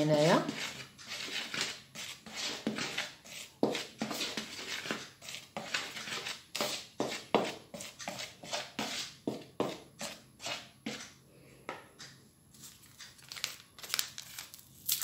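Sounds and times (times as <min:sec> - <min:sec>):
hand mixing powder in plastic bowl: 0:00.0 - 0:11.2.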